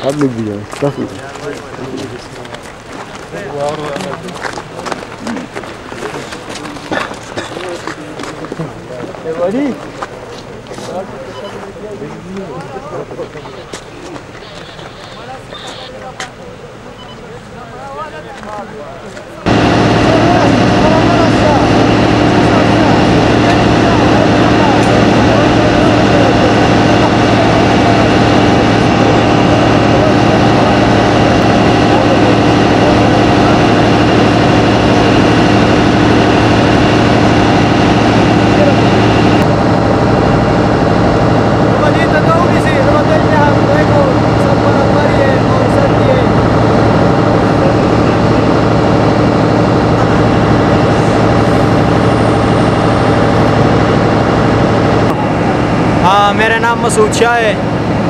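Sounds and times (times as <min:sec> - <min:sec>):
faint voices: 0:00.0 - 0:39.5
steady mechanical hum: 0:00.0 - 0:58.0
vehicle engine idling: 0:00.0 - 0:58.0.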